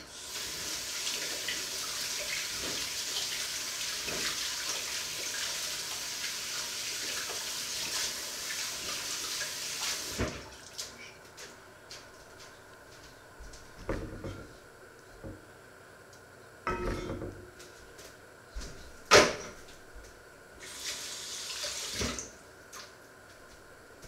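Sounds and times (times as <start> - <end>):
steady hiss: 0.0 - 10.3, 20.6 - 22.4.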